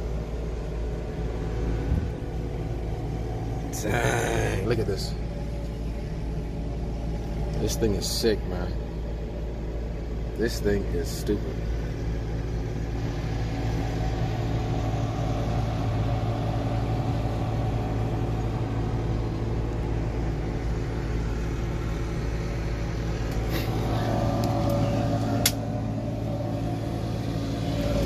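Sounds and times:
diesel engine idling: 0:00.0 - 0:28.0
sharp click: 0:25.4 - 0:25.6.

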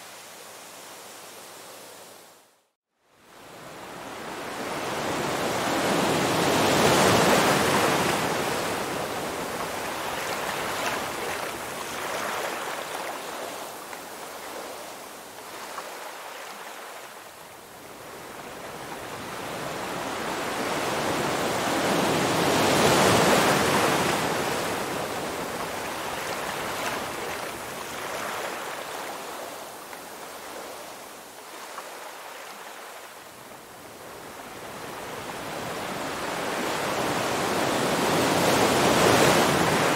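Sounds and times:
ocean waves breaking: 0:03.9 - 0:33.1, 0:34.1 - 0:39.9.

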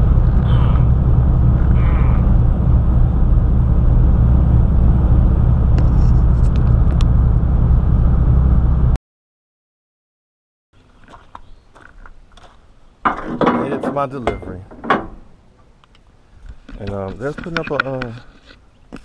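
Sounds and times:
diesel engine drone: 0:00.0 - 0:09.0
road noise: 0:00.0 - 0:09.0.

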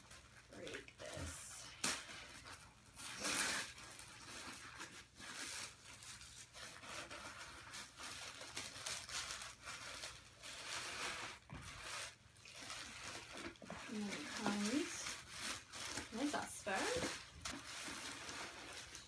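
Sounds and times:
tissue paper rustling: 0:00.0 - 0:19.0.

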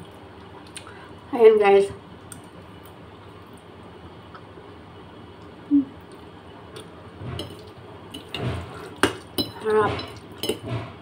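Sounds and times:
cutlery clinking on a plate: 0:08.2 - 0:10.8.

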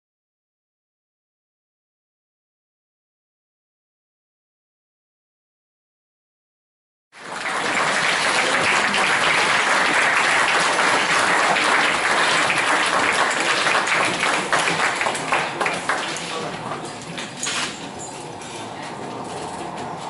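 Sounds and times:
audience applauding: 0:07.2 - 0:16.7.

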